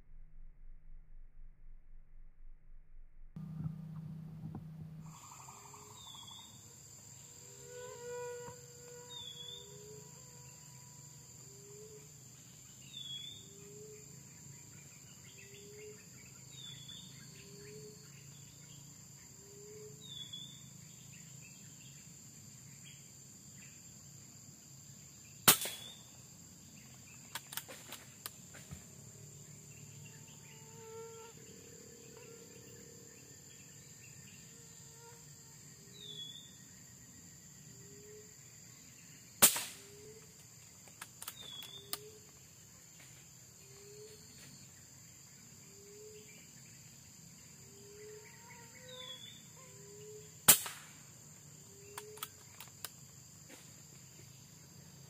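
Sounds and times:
high insect buzz: 0:03.4 - 0:55.0
bird calling: 0:05.0 - 0:06.7
air rifle shots: 0:25.5 - 0:26.0, 0:39.4 - 0:39.9, 0:50.5 - 0:51.0.

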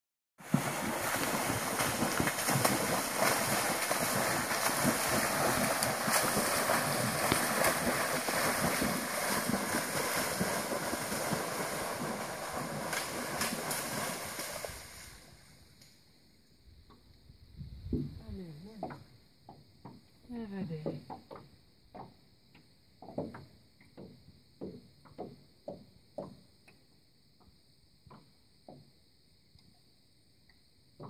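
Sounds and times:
chimpanzee splashing in water: 0:00.4 - 0:15.0.

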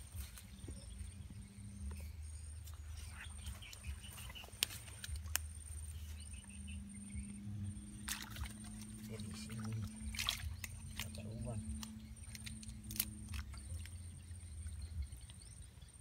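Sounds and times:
low wind rumble: 0:00.0 - 0:16.0
steady low hum: 0:00.0 - 0:16.0
hand squelching in wet mud: 0:08.0 - 0:14.0.

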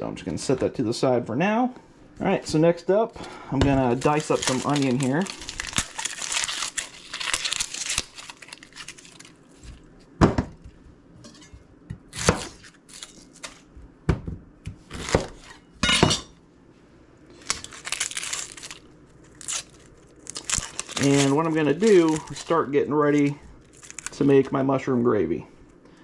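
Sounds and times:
onion skin crackling and tearing: 0:03.3 - 0:10.0, 0:12.1 - 0:13.7, 0:17.3 - 0:24.4.

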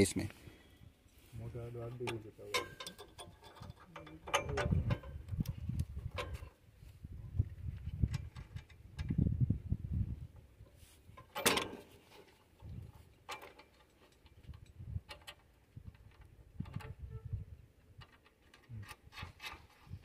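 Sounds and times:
light metal clicks and knocks: 0:01.8 - 0:06.6, 0:10.6 - 0:17.0, 0:17.8 - 0:19.6.

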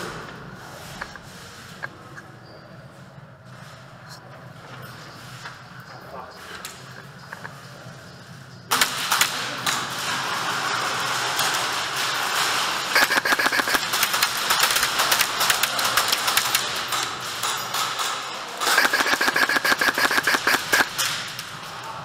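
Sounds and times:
airsoft rifle full-auto bursts: 0:12.9 - 0:16.7, 0:18.6 - 0:21.0.

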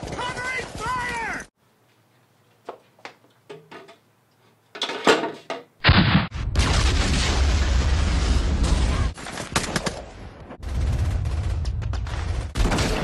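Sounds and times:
loud blast: 0:05.8 - 0:09.2
machine-gun and rifle fire: 0:09.0 - 0:13.0.

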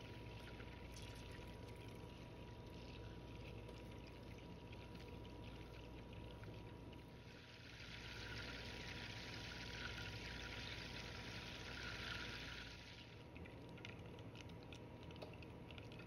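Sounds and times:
butter sizzling in saucepan: 0:07.3 - 0:13.0.

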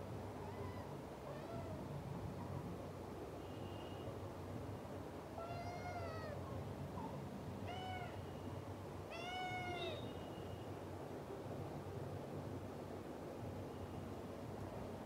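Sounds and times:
kitten meowing: 0:09.1 - 0:10.0.

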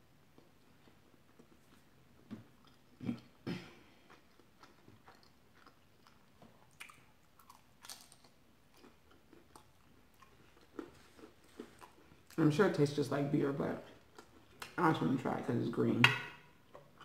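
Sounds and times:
wet chewing: 0:00.3 - 0:12.4
crunching bites: 0:04.3 - 0:11.9.

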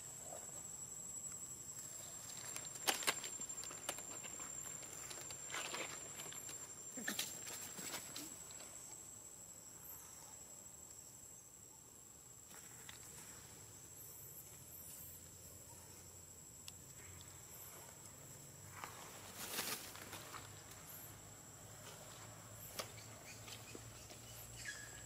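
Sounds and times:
high insect drone: 0:00.0 - 0:25.0
steps in grass and dry leaves: 0:19.0 - 0:20.7.

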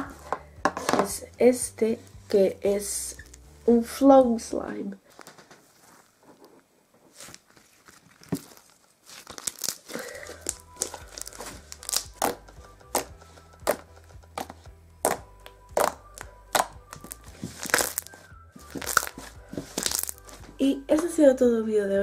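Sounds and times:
soft background music: 0:00.0 - 0:06.6, 0:09.4 - 0:22.0
slime crackling pops and clicks: 0:10.4 - 0:19.2, 0:19.8 - 0:20.2.

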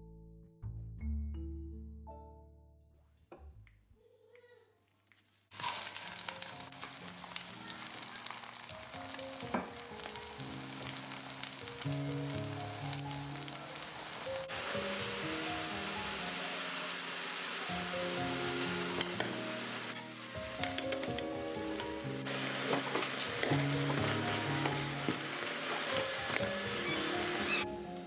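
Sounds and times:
potato patties sizzling in oil: 0:05.5 - 0:27.7
light background music: 0:05.6 - 0:28.0.

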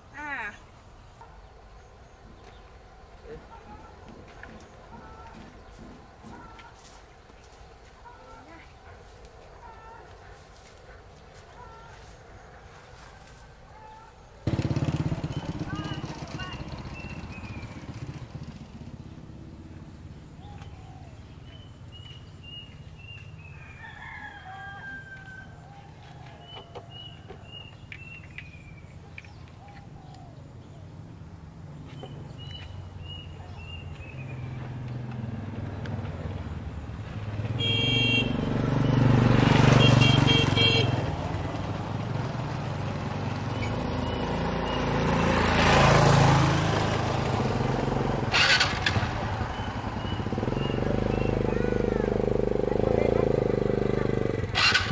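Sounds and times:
motor vehicles passing: 0:00.0 - 0:54.9
small birds singing: 0:00.1 - 0:38.4, 0:40.0 - 0:54.9
rooster crowing: 0:23.5 - 0:27.0
short horn beeps: 0:37.6 - 0:38.5, 0:39.8 - 0:41.0.

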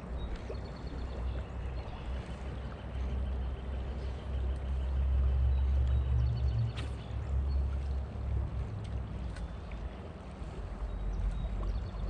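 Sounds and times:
river water flowing: 0:00.0 - 0:12.0.

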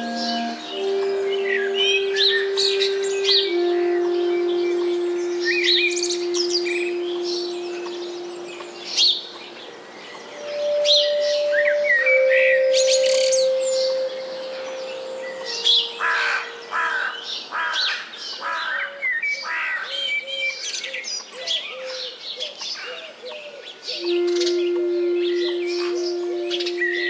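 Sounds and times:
long held musical tones: 0:00.0 - 0:17.5, 0:23.9 - 0:27.0
birds chirping in chorus: 0:00.0 - 0:27.0.

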